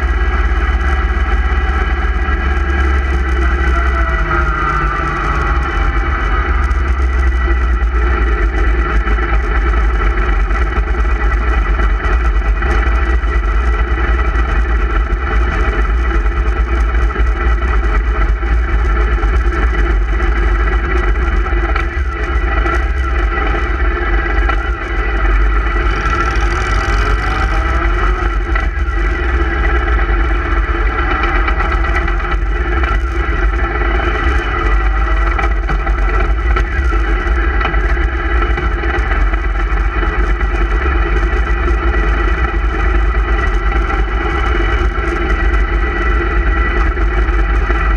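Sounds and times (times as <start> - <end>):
motorcycle engines droning: 0.0 - 47.9
wind rumble on microphone: 0.0 - 47.9.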